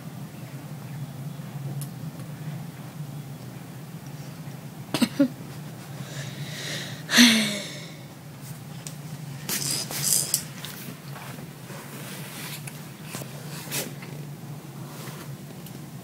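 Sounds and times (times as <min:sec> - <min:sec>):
baby grunting: 0:06.1 - 0:08.0
rustling and handling noise: 0:08.4 - 0:16.0.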